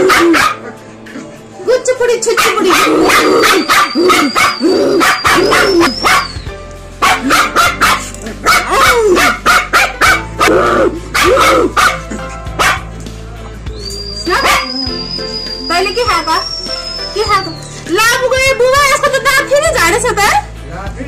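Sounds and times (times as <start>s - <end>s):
puppy yipping: 0.0s - 0.7s, 2.3s - 12.9s, 13.8s - 17.8s.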